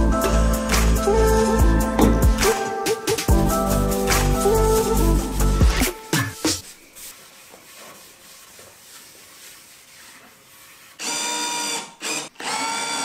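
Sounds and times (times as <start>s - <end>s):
cloth rubbing on wood: 5.6s - 11.0s
cordless drill running: 11.0s - 13.0s.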